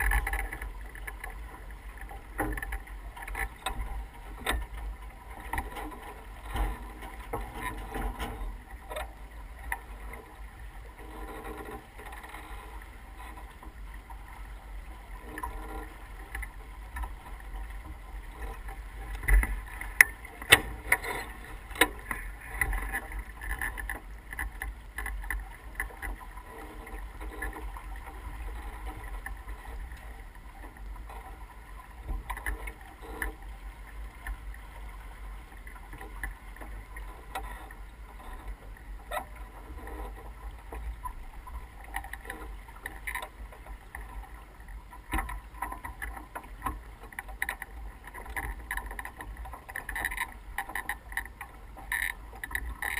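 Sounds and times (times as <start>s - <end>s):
rush of wind and water: 0.0s - 52.9s.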